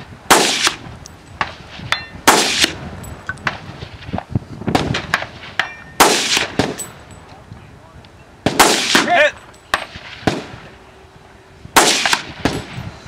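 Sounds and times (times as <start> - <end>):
gunshots: 0.3 - 0.8, 1.4 - 2.8, 3.4 - 6.9, 8.4 - 10.7, 11.8 - 12.8
steel targets ringing: 5.6 - 7.0.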